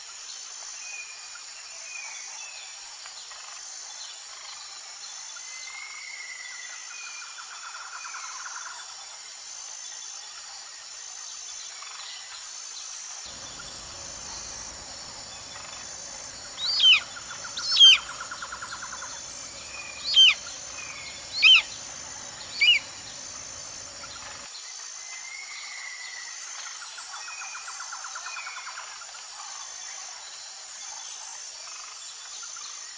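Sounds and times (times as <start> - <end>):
bird whistling downward notes: 13.3 - 24.5
fast bird trill: 13.3 - 24.5
high insect buzz: 13.3 - 24.5.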